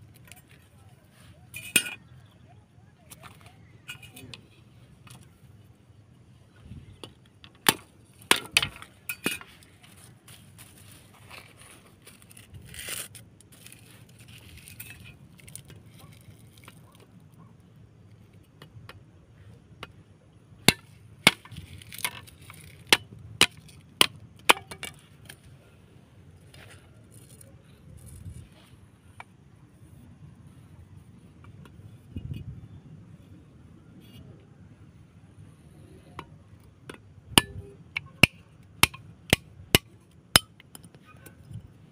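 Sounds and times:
machete chopping bamboo: 7.6s - 8.9s, 20.6s - 25.4s, 36.9s - 40.6s
blade scraping bamboo: 7.7s - 17.0s.

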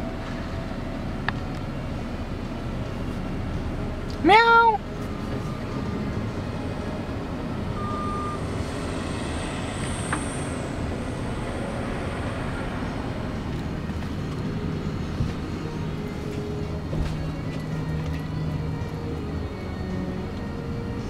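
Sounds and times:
car engine rumble from inside: 0.0s - 21.0s
brief thin tone: 7.7s - 8.8s.

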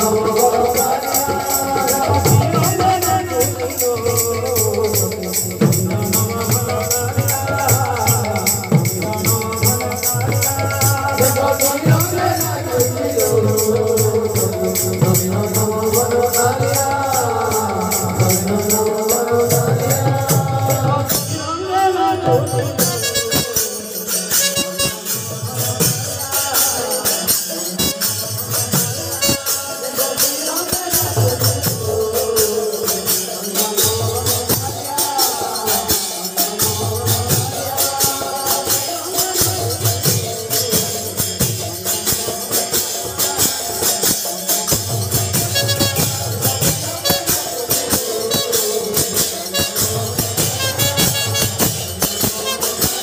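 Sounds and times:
hand drums beating: 0.0s - 53.0s
brass hand cymbals jingling: 22.4s - 53.0s.

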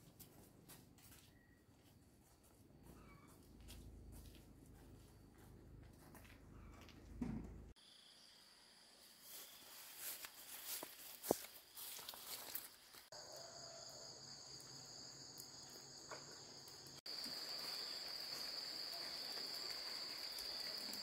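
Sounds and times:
insects trilling: 7.8s - 21.0s
steps rustling through tall grass: 9.1s - 13.2s.

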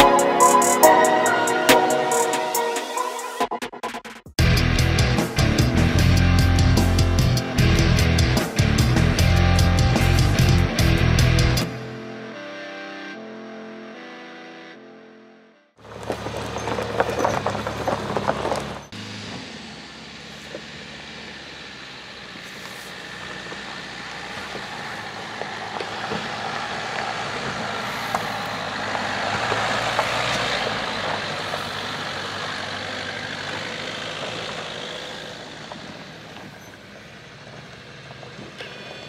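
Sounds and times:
car engine under load: 4.4s - 12.0s, 15.8s - 39.0s
chains and tyres crunching on gravel: 15.8s - 39.0s.

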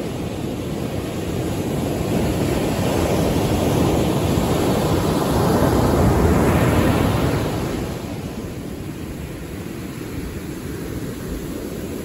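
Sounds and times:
ocean waves breaking on beach: 0.0s - 12.0s.

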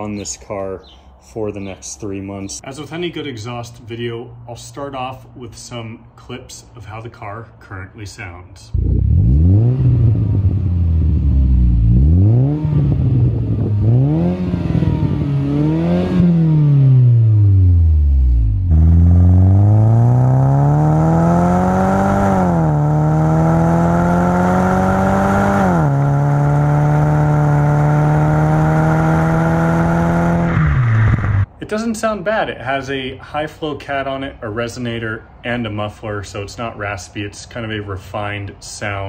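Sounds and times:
car engine revving and accelerating: 8.8s - 31.5s.

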